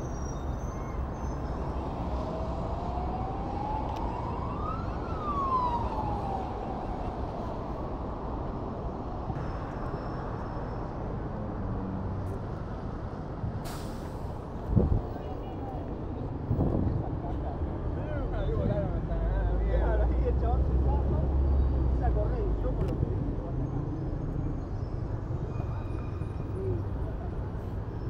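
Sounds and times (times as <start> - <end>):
city street traffic: 0.0 - 28.0
siren wailing: 2.4 - 7.3.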